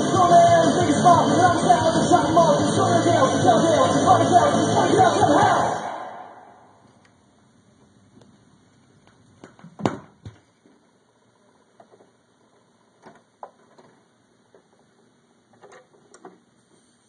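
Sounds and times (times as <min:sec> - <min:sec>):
vinyl surface hiss: 0:06.8 - 0:17.0.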